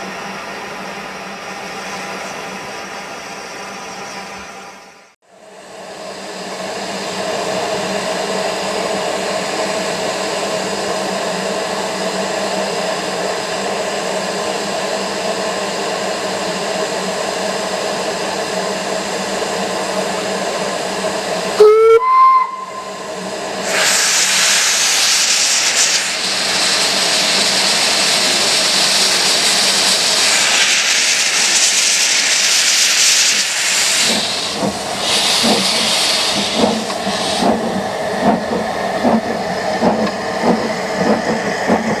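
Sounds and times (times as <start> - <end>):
steam billowing from engines: 5.3 - 42.0
steam whistle toot: 21.6 - 23.1
hiss of escaping steam: 23.5 - 38.2.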